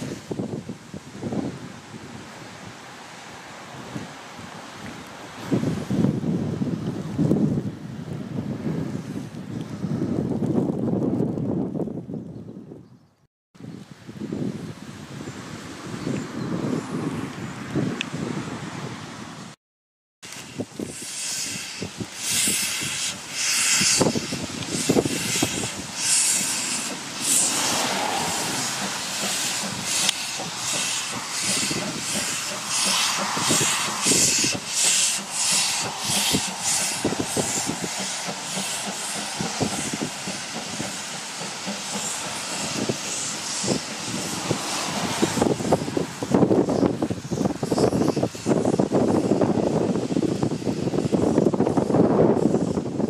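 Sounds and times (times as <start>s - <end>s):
steam hissing: 0.0s - 6.4s, 20.2s - 53.0s
steam locomotive exhaust chuffs: 20.2s - 53.0s.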